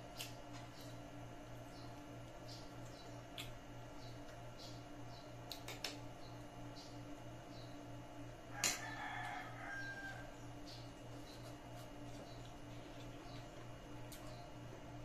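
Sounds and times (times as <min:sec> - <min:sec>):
steady low hum: 0:00.0 - 0:15.0
rooster crowing: 0:08.5 - 0:10.4.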